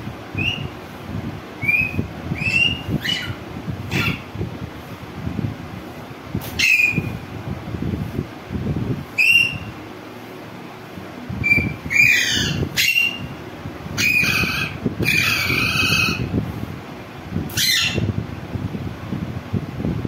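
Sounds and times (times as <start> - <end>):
low rumbling background noise: 0.0 - 20.0
parakeet screeching squawks: 1.6 - 4.3, 6.6 - 7.1, 11.4 - 13.3, 14.0 - 16.3, 17.5 - 18.1.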